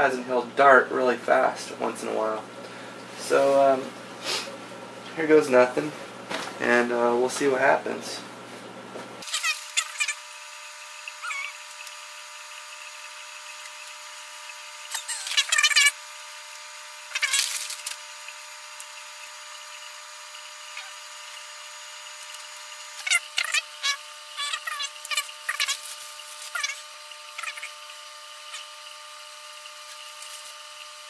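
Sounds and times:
high-pitched equipment hum: 0.0s - 31.0s
high chittering noise: 13.6s - 16.0s, 20.5s - 28.9s.

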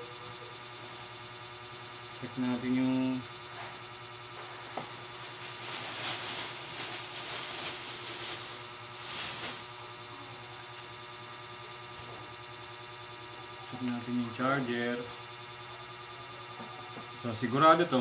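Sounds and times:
steady low hum: 0.0s - 18.0s
rustling handling noise: 4.8s - 9.8s.

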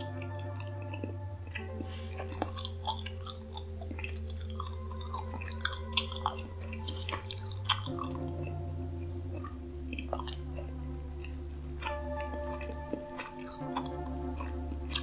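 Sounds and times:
gum chewing smacks: 0.0s - 15.0s
soft background music chord: 0.0s - 15.0s.

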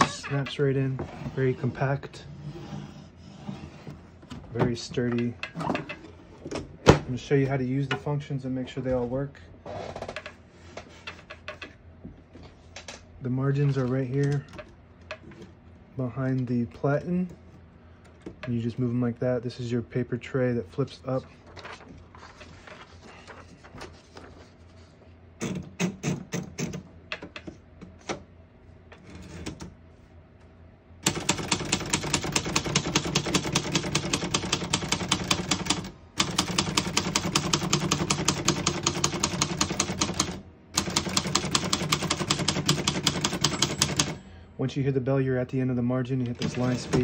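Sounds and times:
fast typewriter typing: 31.0s - 44.2s, 46.4s - 47.0s
typewriter paper loading rattles: 31.0s - 44.2s, 46.4s - 47.0s.

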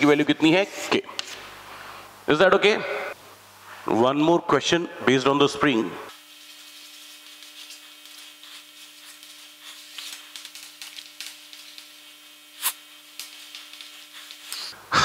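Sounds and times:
chalk scratching on chalkboard: 6.1s - 14.8s.

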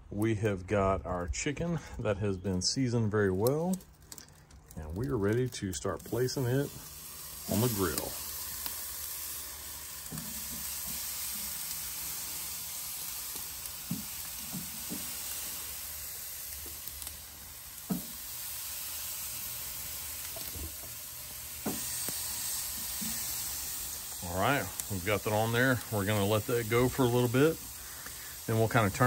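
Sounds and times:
chicken sizzling on grill: 2.6s - 29.0s
knocks of meat on grate: 10.0s - 15.6s, 17.8s - 18.2s, 20.2s - 21.0s, 21.6s - 24.2s.

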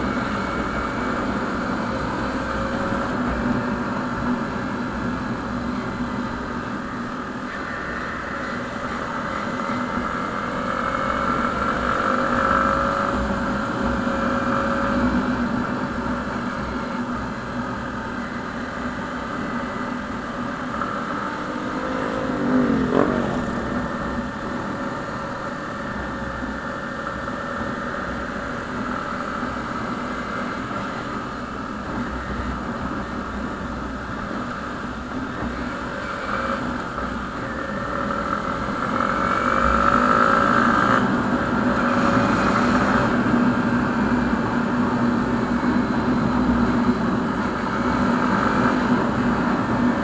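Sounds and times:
motorcycle engine revving: 18.9s - 30.6s.

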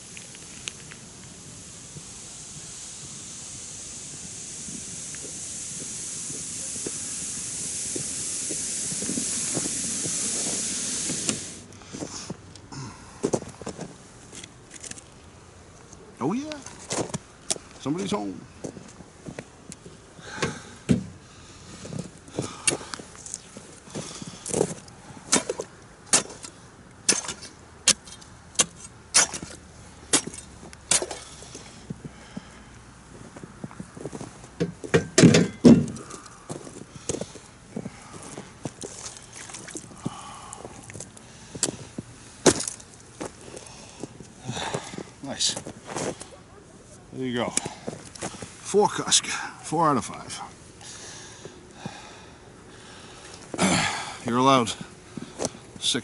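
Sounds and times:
sled sliding over snow: 0.0s - 11.6s
ice chisel striking ice: 25.3s - 31.2s.

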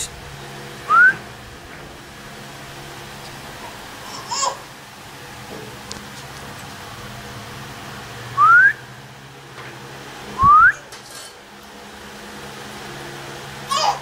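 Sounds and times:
person whistling rising whistles: 0.9s - 1.2s, 8.4s - 8.8s, 10.4s - 10.8s.

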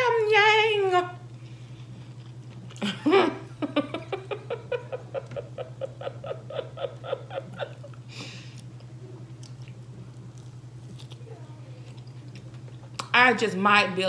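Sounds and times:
steady low hum: 0.0s - 14.0s
person chewing close to microphone: 1.4s - 2.9s, 7.8s - 13.1s.

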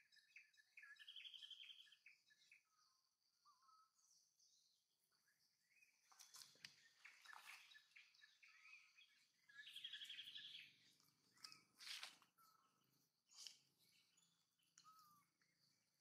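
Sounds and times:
bird trill: 0.0s - 2.9s, 6.2s - 12.7s
small birds chirping: 0.0s - 16.0s.

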